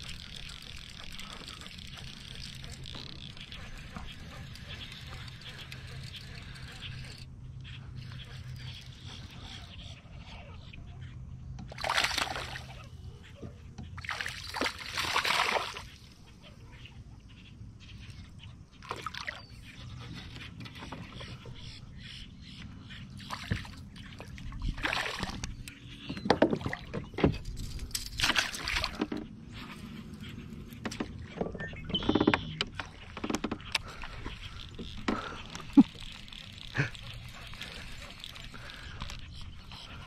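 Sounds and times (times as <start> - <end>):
fish splashing at water surface: 11.8 - 12.8.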